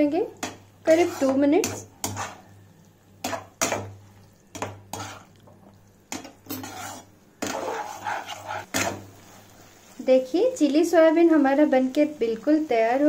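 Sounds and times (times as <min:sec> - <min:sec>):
metal spatula scraping a pan: 0:00.4 - 0:02.6, 0:03.2 - 0:05.3, 0:06.1 - 0:09.4.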